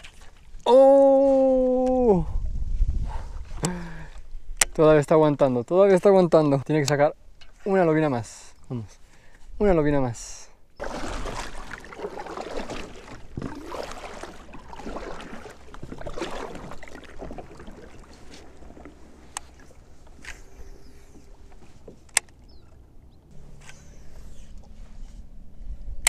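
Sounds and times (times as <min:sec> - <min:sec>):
water rushing: 0:10.8 - 0:20.2.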